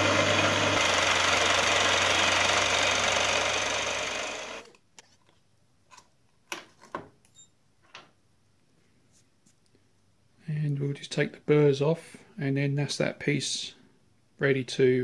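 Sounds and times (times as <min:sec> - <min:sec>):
milling machine cutting steel: 0:00.0 - 0:04.7.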